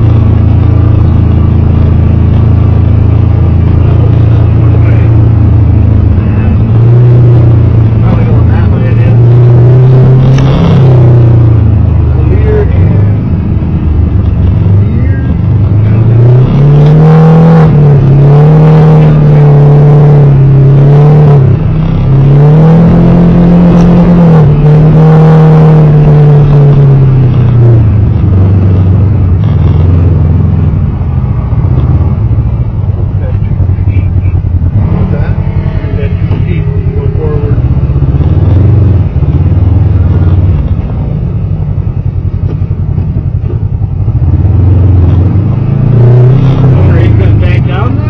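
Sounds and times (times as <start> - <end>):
vehicle engine revving: 0.0 - 48.0.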